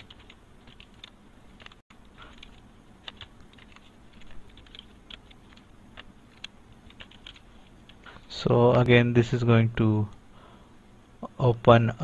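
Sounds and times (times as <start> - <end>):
computer keyboard typing: 0.0 - 8.0.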